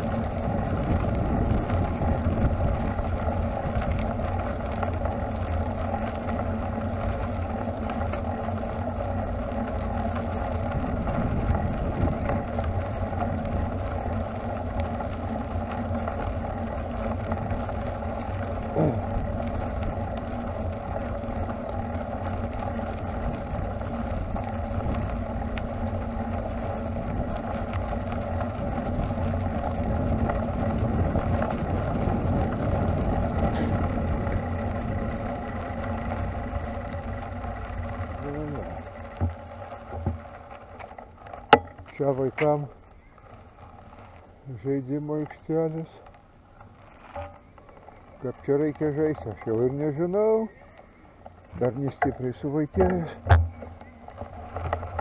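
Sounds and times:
wind on microphone: 0.0s - 4.4s, 10.6s - 13.8s
bicycle tyres rolling on pavement: 0.0s - 55.0s.

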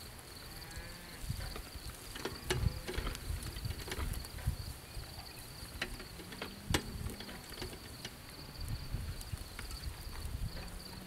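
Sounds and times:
insect chirring: 0.0s - 11.0s
cart wheels knocking and rattling: 1.3s - 11.0s.

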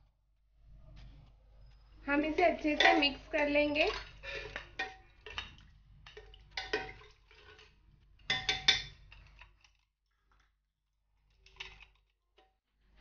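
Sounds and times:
metal spoon clinking on pot: 2.3s - 7.1s, 8.3s - 9.4s.

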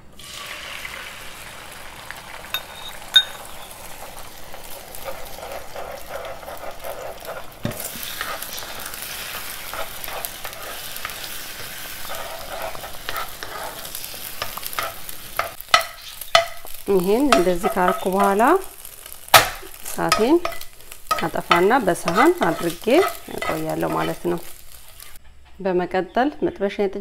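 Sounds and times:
eggs sizzling in oil: 0.0s - 25.2s
fork scraping a pan: 4.9s - 18.6s, 19.4s - 25.2s.

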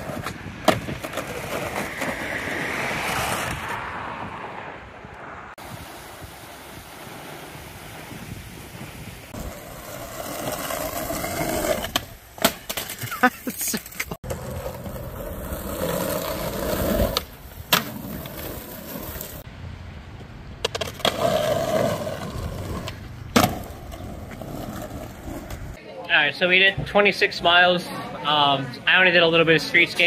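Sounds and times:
skateboard clacking on concrete: 0.0s - 2.2s, 20.6s - 25.7s
skateboard wheels rolling on asphalt: 0.0s - 25.8s.

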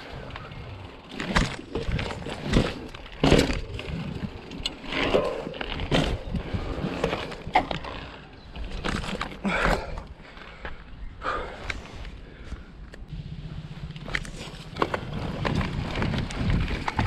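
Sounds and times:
mountain bike on rough ground: 0.0s - 17.0s
low rumble: 13.1s - 17.0s.

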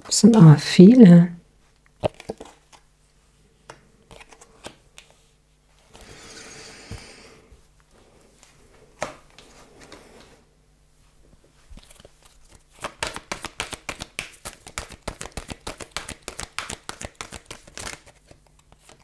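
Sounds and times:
cards rustling: 2.0s - 2.8s, 3.7s - 5.2s, 11.7s - 19.0s.

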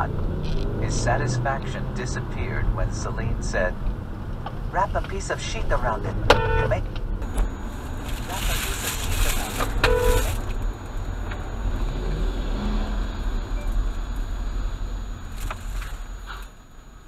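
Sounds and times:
car engine rumble: 0.0s - 17.0s
road noise: 0.0s - 17.0s
car horn honk: 6.3s - 6.8s, 9.8s - 10.4s.

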